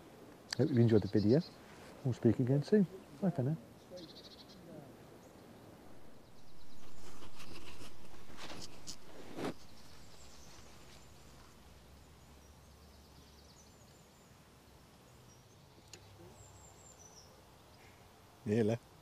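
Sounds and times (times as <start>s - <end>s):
faint bird chirps: 3.7s - 14.4s.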